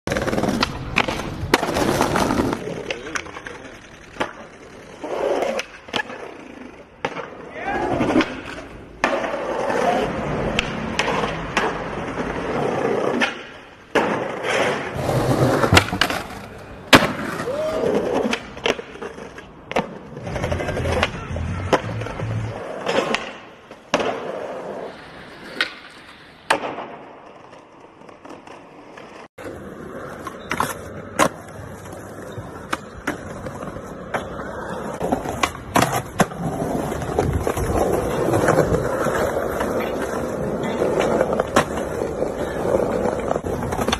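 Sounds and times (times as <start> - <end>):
skateboard wheels rolling on concrete: 0.0 - 43.9
skateboard clacks: 0.1 - 24.7, 25.4 - 43.9.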